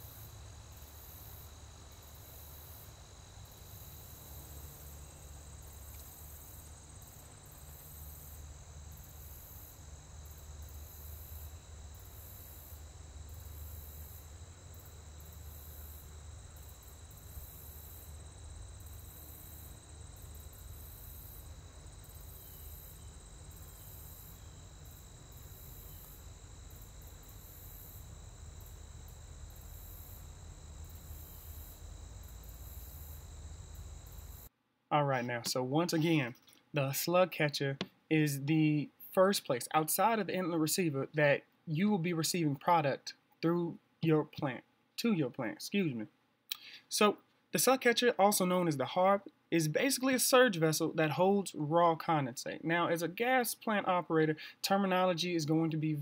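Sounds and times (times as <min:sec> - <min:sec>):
insects trilling: 0:00.0 - 0:34.5.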